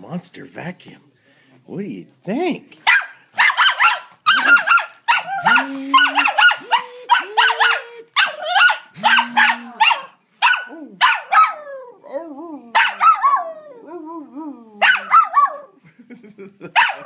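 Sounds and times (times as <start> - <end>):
puppy yapping: 2.9 - 12.0, 12.7 - 13.6, 14.8 - 15.7, 16.8 - 17.0
puppy growling: 5.2 - 10.0.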